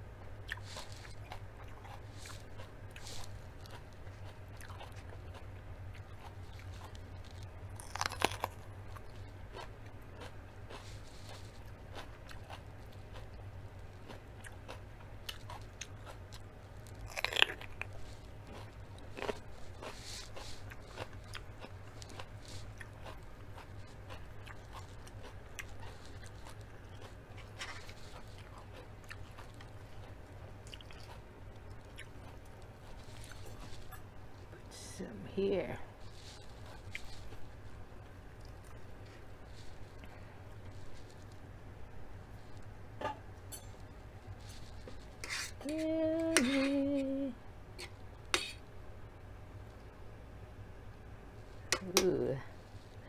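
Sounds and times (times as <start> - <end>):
low steady hum: 0.0 - 53.0
chewing and crunching pepper: 0.3 - 34.6, 35.9 - 41.5.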